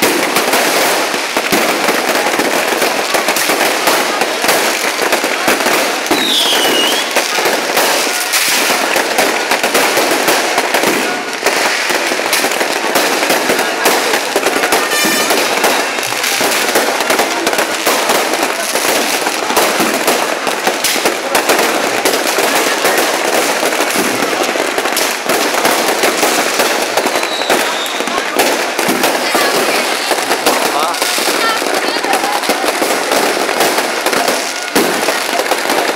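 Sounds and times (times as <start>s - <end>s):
fireworks crackling and banging: 0.0s - 35.9s
firework falling whistle: 6.1s - 7.2s, 27.0s - 28.2s.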